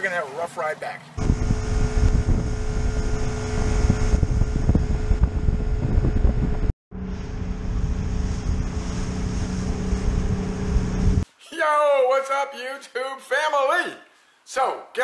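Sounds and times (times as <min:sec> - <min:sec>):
boat engine hum: 0:01.2 - 0:11.2
wind buffeting microphone: 0:01.2 - 0:11.2.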